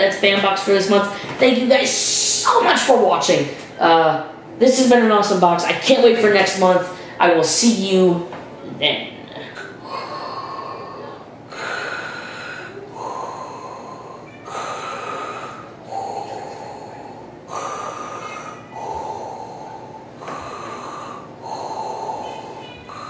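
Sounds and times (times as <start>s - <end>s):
heavy breathing: 1.0s - 1.4s, 9.3s - 23.0s.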